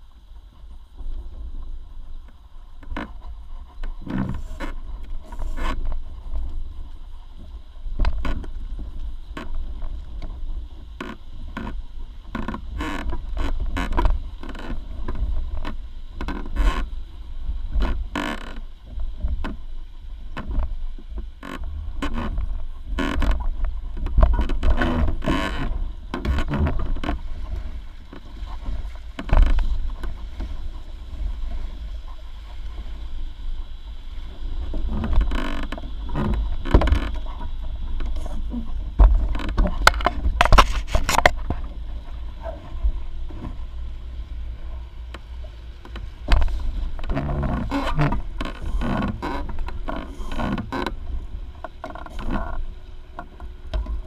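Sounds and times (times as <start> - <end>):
waves slapping against a hull: 0.0 - 54.0
low rumble: 16.8 - 54.0.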